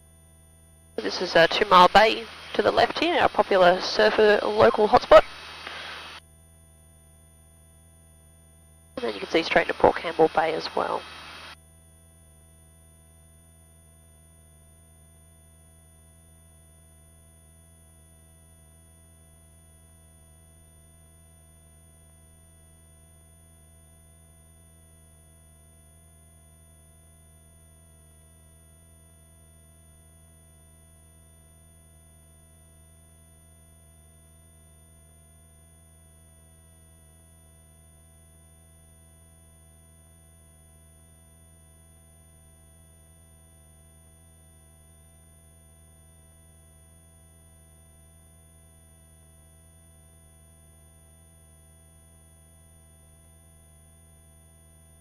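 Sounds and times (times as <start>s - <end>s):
faint electrical intercom hum: 1.0s - 6.2s, 9.0s - 11.6s.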